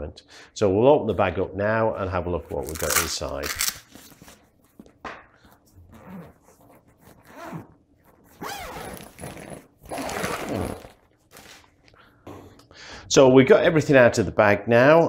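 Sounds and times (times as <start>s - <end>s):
bag zip pulled open: 5.9s - 11.6s.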